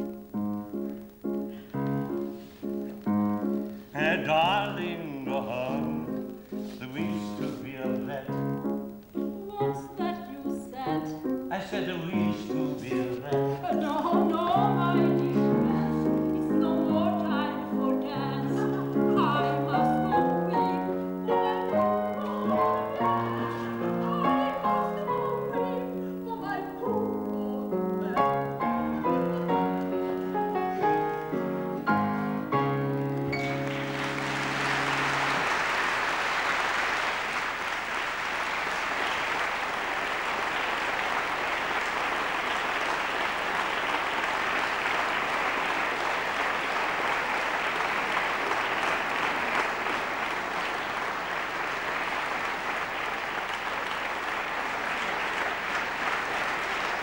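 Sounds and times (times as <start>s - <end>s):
grand piano playing: 0.0s - 37.2s
audience applause: 11.8s - 25.2s, 32.7s - 57.0s.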